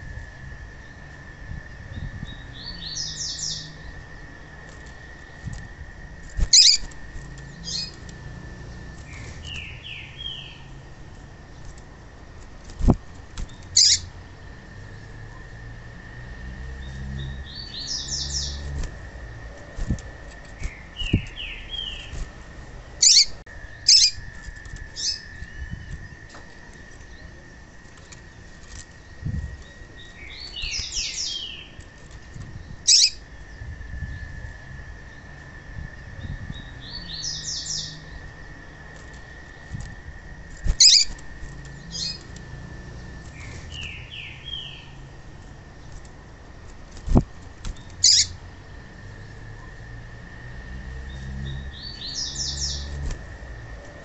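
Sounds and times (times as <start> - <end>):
faint high whine: 0.0 - 54.0
wing flutters: 3.8 - 9.8, 10.9 - 14.3, 18.0 - 34.0, 37.6 - 44.0, 45.1 - 48.8, 51.2 - 54.0
bird chipping calls: 6.4 - 8.0, 13.5 - 14.1, 23.0 - 24.3, 32.9 - 33.2, 40.6 - 42.4, 47.8 - 48.4.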